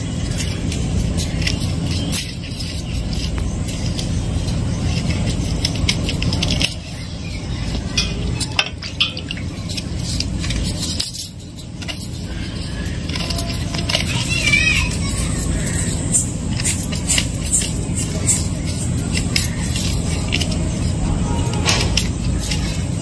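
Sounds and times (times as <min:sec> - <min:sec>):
bangles clinking: 0:00.0 - 0:23.0
gourd slices clicking and scraping: 0:00.0 - 0:23.0
low rumble: 0:14.9 - 0:23.0.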